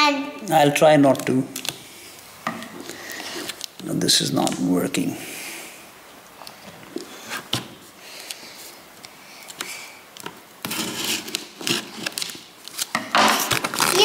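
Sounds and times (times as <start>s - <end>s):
plastic film crinkling: 6.4s - 14.0s
scissors snipping plastic wrap: 10.7s - 14.0s.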